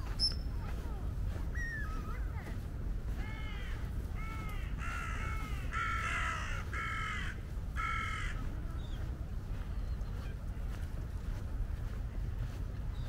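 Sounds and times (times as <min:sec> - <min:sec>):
steady low rumble: 0:00.0 - 0:13.0
crow cawing: 0:03.2 - 0:08.5.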